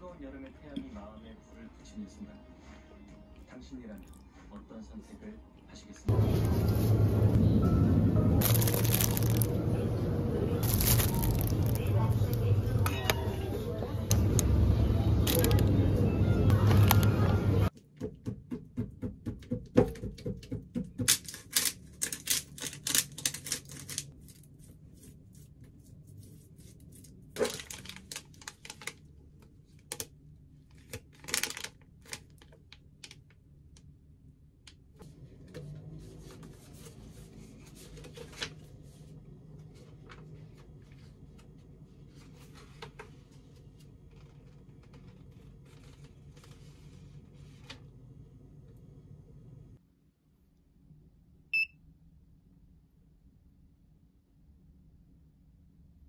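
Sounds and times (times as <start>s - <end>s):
plastic bags crinkling: 8.4s - 9.7s, 10.6s - 13.2s, 21.3s - 24.4s, 27.4s - 29.2s, 30.7s - 33.2s.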